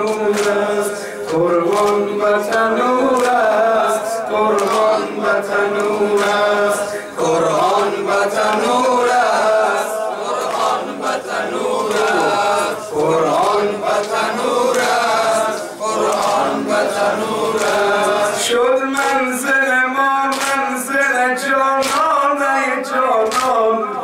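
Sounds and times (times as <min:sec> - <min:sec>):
man singing into a microphone: 0:00.0 - 0:10.2, 0:17.8 - 0:24.0
group of voices chanting: 0:00.0 - 0:19.5.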